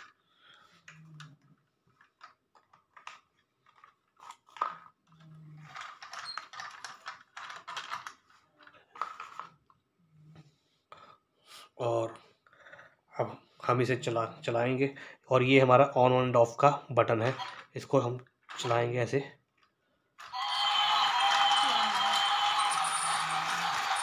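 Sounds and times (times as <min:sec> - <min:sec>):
rustling and scraping: 0:01.5 - 0:09.7
plastic toy train clicks: 0:02.0 - 0:09.5, 0:19.6 - 0:24.0.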